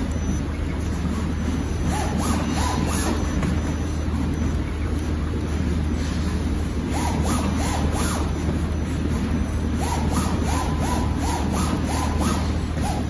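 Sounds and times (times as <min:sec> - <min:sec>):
plotter motors whining: 0:00.0 - 0:13.0
steady low hum: 0:00.0 - 0:13.0.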